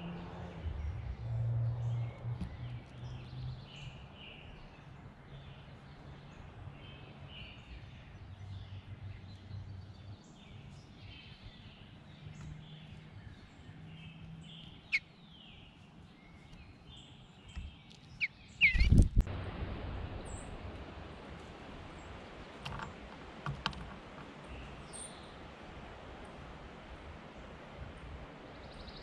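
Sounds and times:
songbirds chirping and singing: 0:00.0 - 0:19.1
low outdoor hum: 0:00.0 - 0:29.0
bird knocking on wooden feeder: 0:22.6 - 0:24.4.

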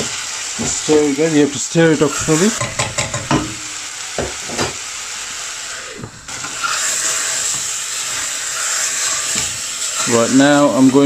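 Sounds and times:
chicken and vegetables sizzling: 0:00.0 - 0:11.0
spoon knocking: 0:02.6 - 0:03.6.

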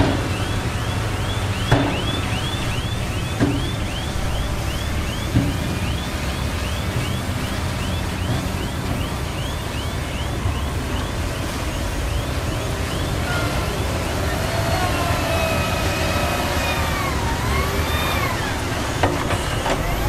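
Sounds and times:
high chirp repeating: 0:00.0 - 0:08.7
diesel engine running: 0:00.0 - 0:20.0.

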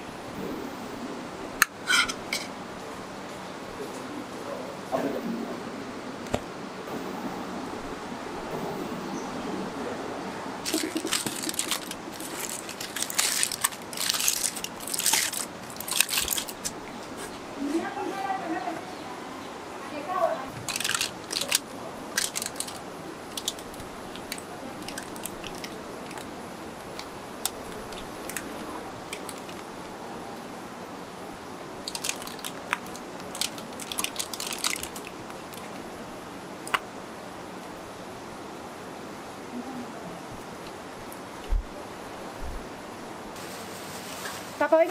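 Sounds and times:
aluminium foil crinkling: 0:10.6 - 0:16.8, 0:20.5 - 0:29.7, 0:31.8 - 0:35.8.

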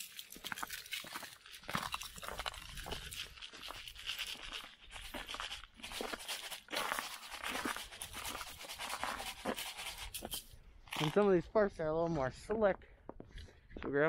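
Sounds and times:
boots crunching on icy snow: 0:00.0 - 0:09.6.

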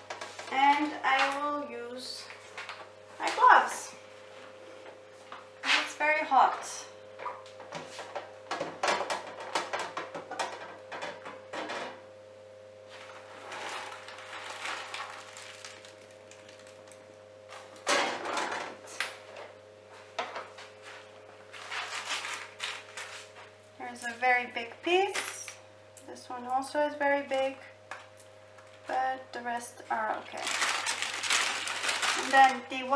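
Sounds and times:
steady low hum: 0:00.0 - 0:32.9
baking paper crinkling: 0:13.0 - 0:17.1, 0:20.5 - 0:24.2, 0:30.1 - 0:32.9.

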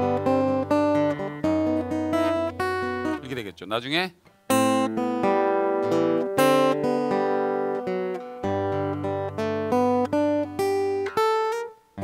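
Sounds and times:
fingerpicked acoustic guitar: 0:00.0 - 0:03.5, 0:04.2 - 0:12.0.

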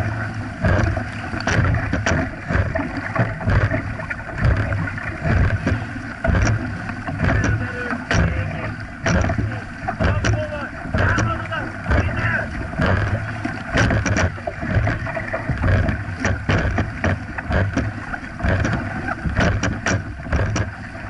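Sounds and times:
paddles pulling through water: 0:00.0 - 0:21.0
water rushing along hull: 0:00.0 - 0:21.0.

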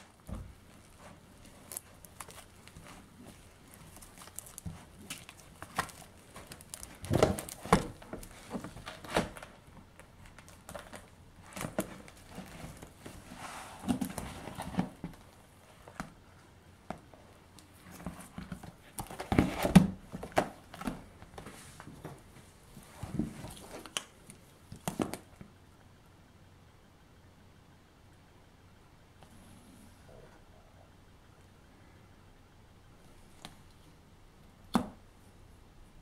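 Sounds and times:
plastic album pages rustling: 0:00.0 - 0:25.4.

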